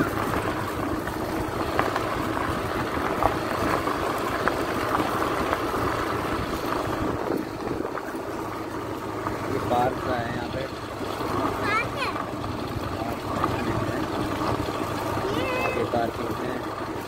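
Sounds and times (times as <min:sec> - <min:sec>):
motor scooter engine hum: 0:00.0 - 0:17.0
wind rushing over microphone: 0:05.2 - 0:08.2.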